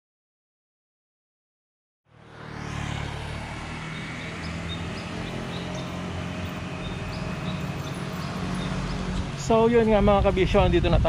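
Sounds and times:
low engine hum: 0:02.1 - 0:11.0
road noise: 0:02.1 - 0:11.0
high bird chirps: 0:03.9 - 0:09.4.

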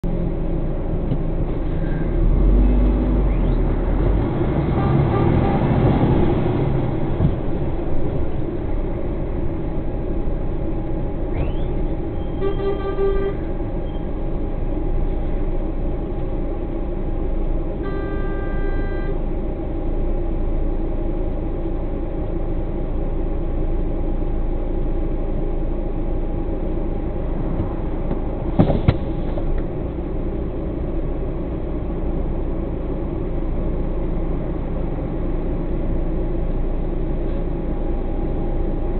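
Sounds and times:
diesel truck engine rumbling: 0:00.0 - 0:38.9
vehicle horn tooting: 0:12.3 - 0:13.5, 0:17.8 - 0:19.2.

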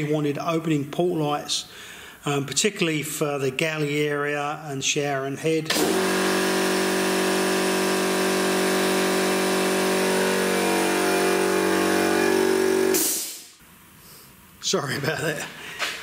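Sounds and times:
machine motor running: 0:05.7 - 0:13.0.

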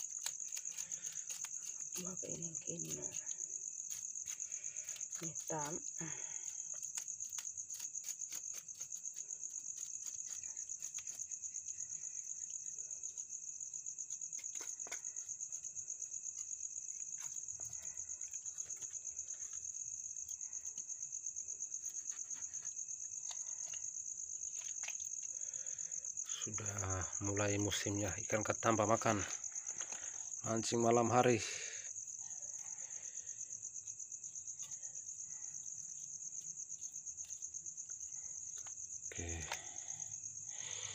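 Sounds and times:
knife scraping fish scales: 0:00.0 - 0:05.5, 0:06.4 - 0:11.4, 0:14.2 - 0:15.7
night insects trilling: 0:00.0 - 0:40.9.

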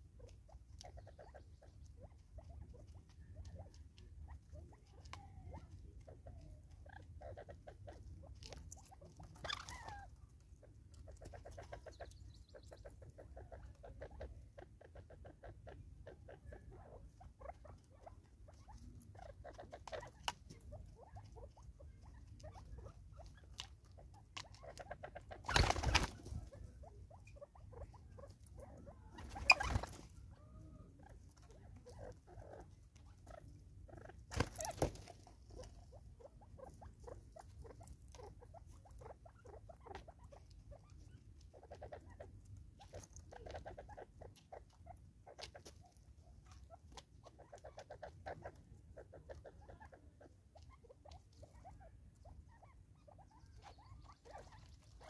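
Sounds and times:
birds pecking seed: 0:00.0 - 0:55.0.

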